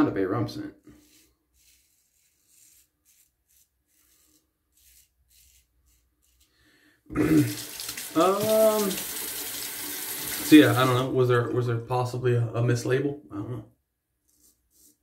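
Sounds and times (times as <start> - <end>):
razor scraping stubble: 1.0 - 6.5
tap water running into sink: 7.4 - 11.0.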